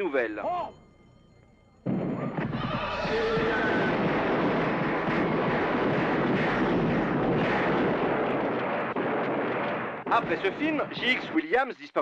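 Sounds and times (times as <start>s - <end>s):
dense roar of noise: 2.3s - 8.7s.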